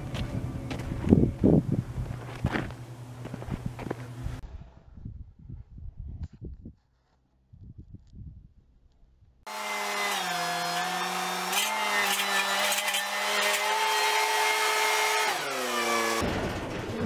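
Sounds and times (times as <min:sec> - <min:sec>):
skid steer engine revving: 0:09.5 - 0:16.2.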